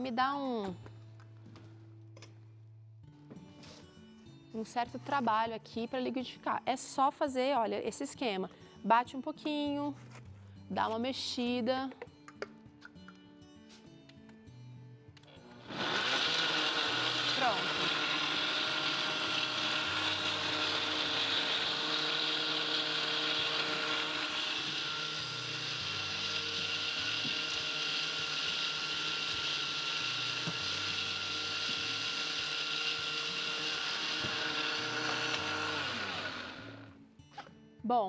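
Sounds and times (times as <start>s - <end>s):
blender motor running: 15.4s - 37.0s.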